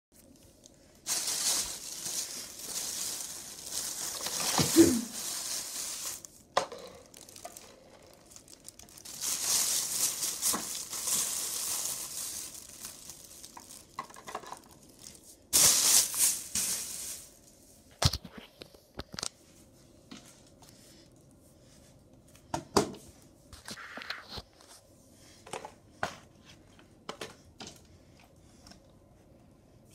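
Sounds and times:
plastic mailer bag crinkling: 0:00.2 - 0:17.7.

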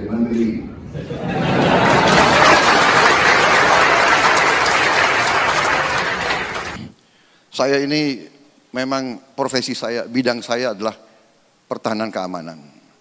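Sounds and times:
audience applauding: 0:01.2 - 0:06.8.

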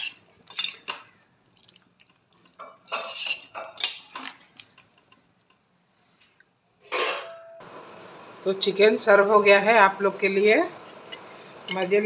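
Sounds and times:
metal spoon scraping a pan: 0:00.0 - 0:01.1, 0:02.6 - 0:05.2, 0:06.8 - 0:07.6, 0:10.8 - 0:12.0.

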